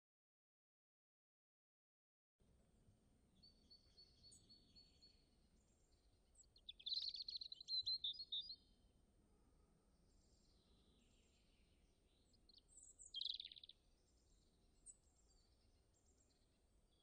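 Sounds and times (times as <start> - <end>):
faint outdoor background noise: 2.4 - 17.0
rapid bird chirps: 6.4 - 8.6, 12.3 - 13.8.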